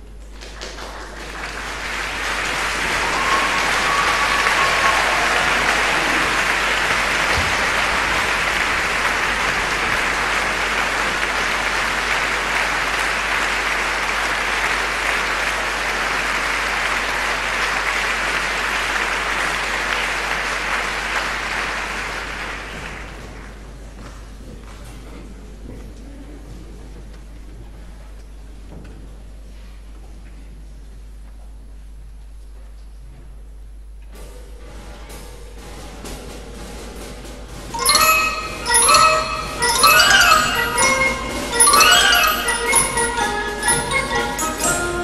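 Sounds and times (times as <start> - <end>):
audience applauding: 0.3 - 23.6, 37.8 - 45.0.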